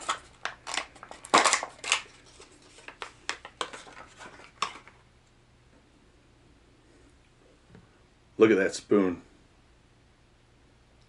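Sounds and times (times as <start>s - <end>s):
plastic package crinkling and tearing: 0.0s - 5.0s.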